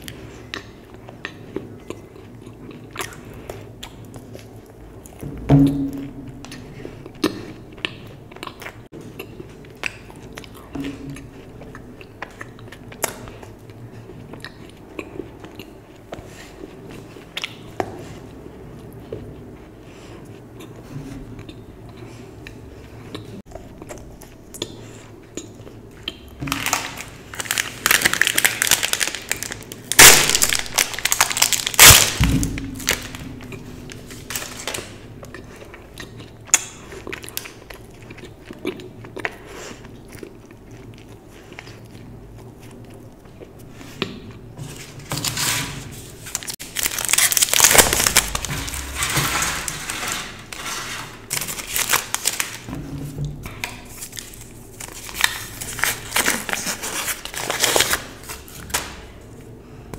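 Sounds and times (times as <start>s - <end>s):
crunchy chewing: 0.0s - 5.2s, 32.8s - 45.2s
wrappers crinkling: 26.4s - 35.1s, 44.7s - 52.7s, 53.9s - 59.1s
chocolate cracking: 26.4s - 35.4s, 46.4s - 52.7s.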